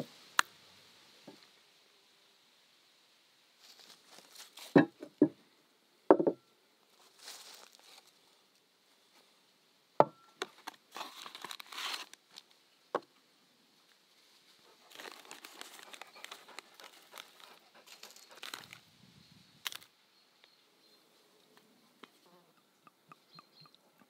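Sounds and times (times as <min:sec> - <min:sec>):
knock: 0:06.1 - 0:06.4
ceramic bowl set on wood: 0:06.1 - 0:06.5
plastic bag crinkling: 0:10.6 - 0:12.4, 0:14.8 - 0:18.8.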